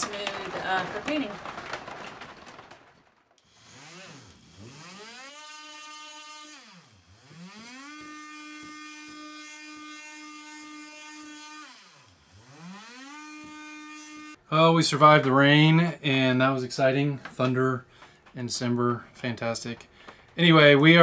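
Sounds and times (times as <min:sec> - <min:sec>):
oscillating tool motor buzzing: 0:03.4 - 0:14.4.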